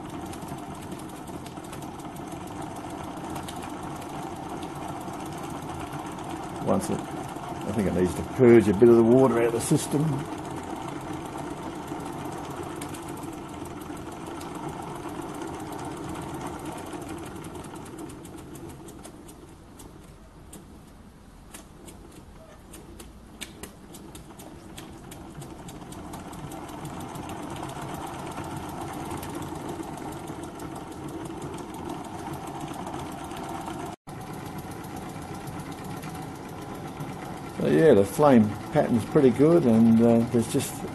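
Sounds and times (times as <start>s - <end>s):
model steam engine running: 0.0s - 20.8s, 21.5s - 40.9s
sharp clicks: 18.2s - 26.0s.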